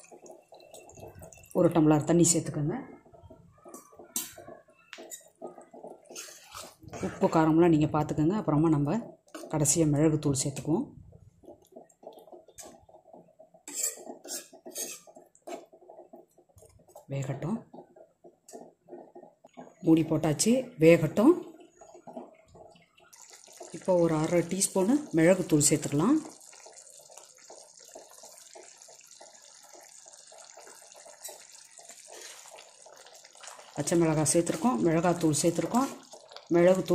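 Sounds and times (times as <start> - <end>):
gravy bubbling: 0.0 - 36.9
spoon stirring liquid: 0.0 - 36.9
spoon scraping pan: 3.7 - 7.4, 11.4 - 16.9, 31.1 - 32.8, 34.3 - 36.3.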